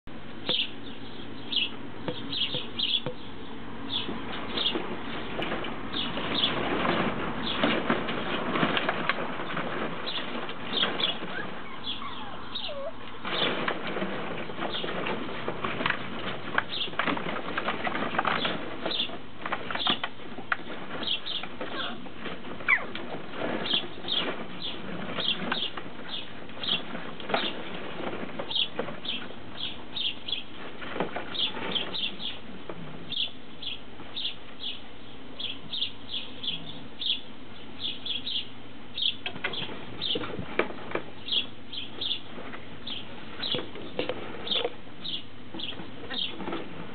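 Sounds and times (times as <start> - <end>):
small birds chirping: 0.4 - 6.6, 9.4 - 13.5, 16.6 - 17.1, 18.2 - 22.0, 22.6 - 27.6, 28.4 - 32.5, 33.1 - 40.3, 41.2 - 46.6
plastic balls and bottles clattering: 3.9 - 12.0, 12.7 - 33.2.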